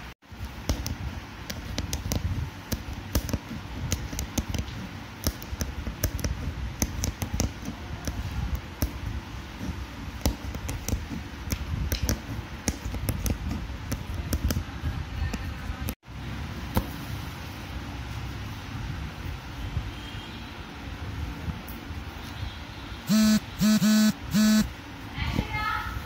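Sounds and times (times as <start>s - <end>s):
needle punching through fabric: 0.5s - 14.7s.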